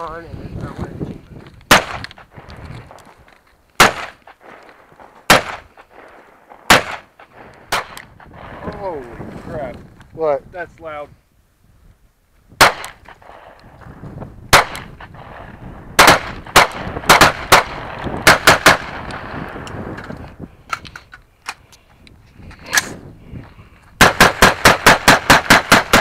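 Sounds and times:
pistol gunshots: 1.7s - 2.5s, 3.8s - 8.6s, 12.6s - 13.6s, 14.5s - 19.7s, 24.0s - 26.0s.

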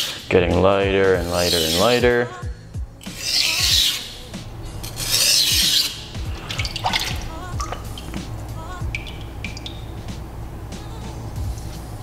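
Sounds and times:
background music with steady beat: 0.0s - 12.0s
knife scraping on whetstone: 1.2s - 2.0s, 3.0s - 4.2s, 4.8s - 6.5s.

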